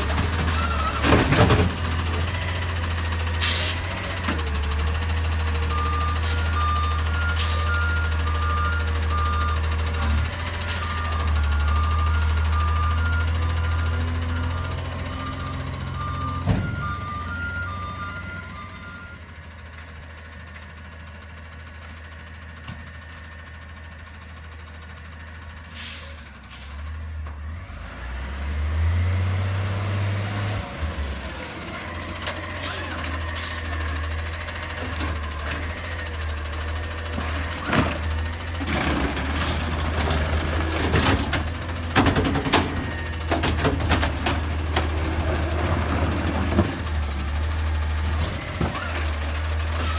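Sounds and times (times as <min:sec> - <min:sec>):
truck engine: 0:00.0 - 0:49.9
air brake hissing: 0:03.4 - 0:03.9, 0:25.7 - 0:26.8.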